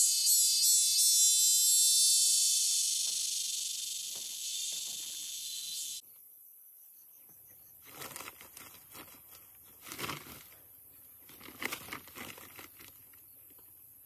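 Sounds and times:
insects shrilling chorus: 0:00.0 - 0:06.0.

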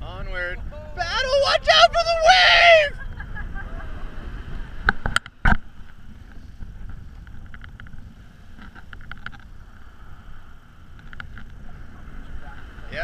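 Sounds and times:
wind rumbling on microphone: 0:00.0 - 0:13.0
faint ticks: 0:10.9 - 0:11.6.

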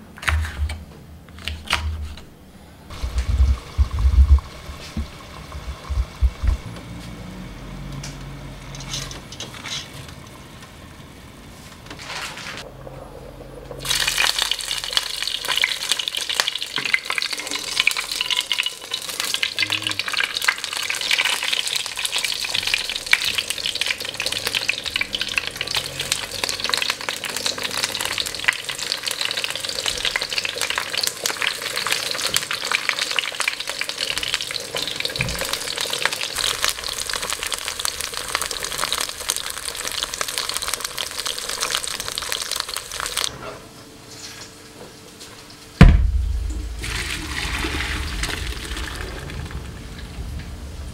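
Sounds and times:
vegetables sizzling in hot oil: 0:02.9 - 0:06.6, 0:13.8 - 0:43.3.

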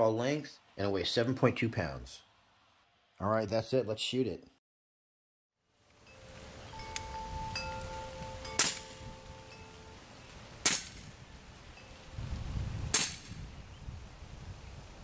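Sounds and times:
air rifle shots: 0:08.6 - 0:09.0, 0:10.6 - 0:11.1, 0:12.9 - 0:13.4.

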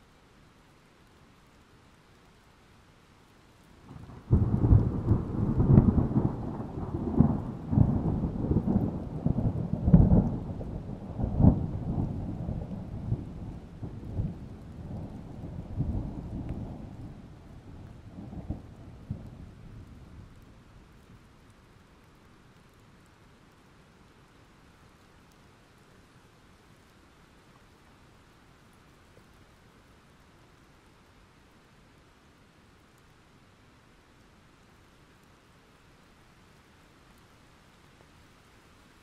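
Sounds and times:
rain falling: 0:00.0 - 0:39.0
thunder clap and rumble: 0:04.0 - 0:20.5.

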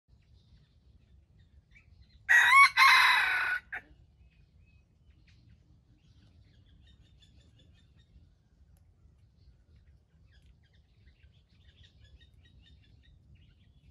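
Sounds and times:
rooster crowing: 0:02.3 - 0:03.9.

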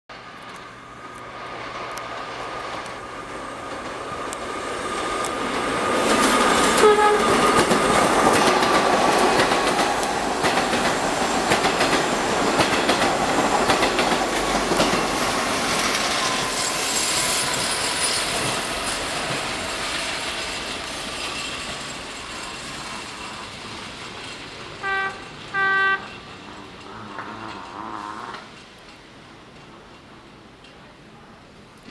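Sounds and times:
train wheels clacking over rail joints: 0:03.6 - 0:30.9
train horn blasts: 0:06.7 - 0:07.6, 0:24.8 - 0:28.5.

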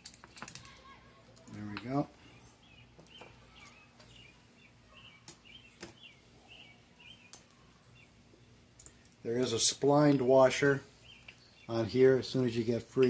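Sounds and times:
small bird chirping: 0:01.5 - 0:09.1, 0:10.9 - 0:11.9.

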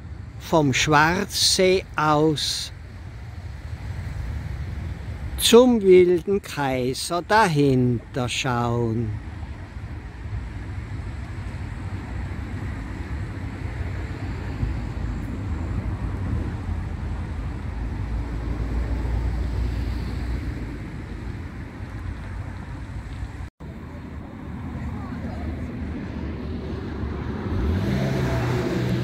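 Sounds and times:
wind buffeting microphone: 0:09.1 - 0:29.0.

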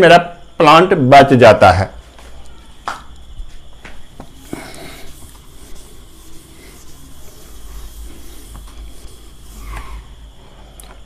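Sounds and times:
low electrical hum: 0:00.0 - 0:11.0
duster wiping a whiteboard: 0:04.0 - 0:10.6.

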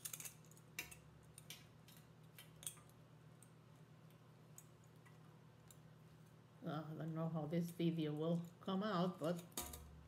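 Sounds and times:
wire clicking while handled: 0:00.0 - 0:06.4
faint low hum: 0:00.0 - 0:10.0.

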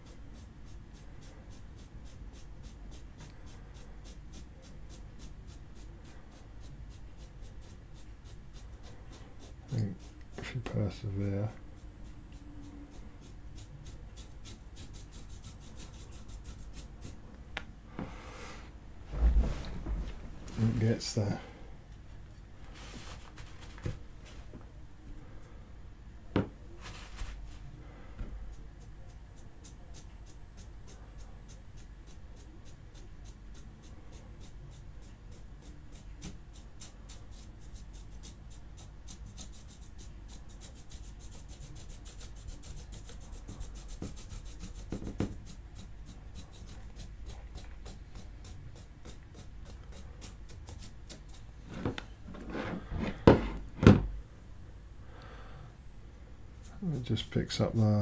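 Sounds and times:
brush bristles scratching plastic: 0:00.0 - 0:17.2, 0:28.4 - 0:53.2
plastic arm knocking on mat: 0:53.2 - 0:54.1.

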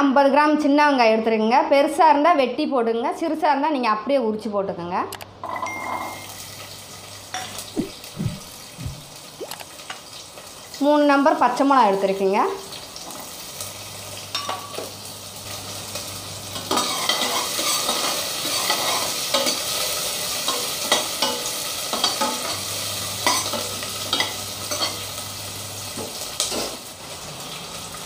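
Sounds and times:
shallots sizzling in oil: 0:06.1 - 0:28.0
spoon scraping a pot: 0:16.8 - 0:19.6.

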